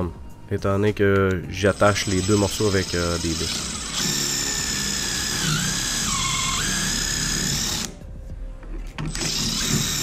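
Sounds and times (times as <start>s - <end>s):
cordless drill whining: 1.7s - 8.0s, 9.1s - 10.0s.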